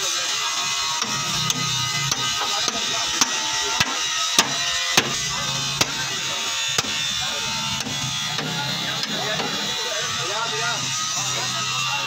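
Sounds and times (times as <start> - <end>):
sledgehammer striking metal: 1.0 - 6.1.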